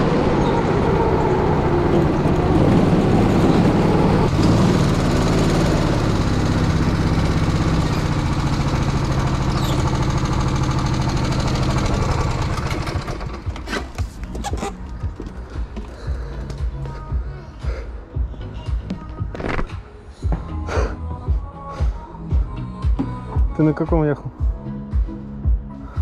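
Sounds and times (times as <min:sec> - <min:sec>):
go-kart engine running: 0:00.0 - 0:14.7.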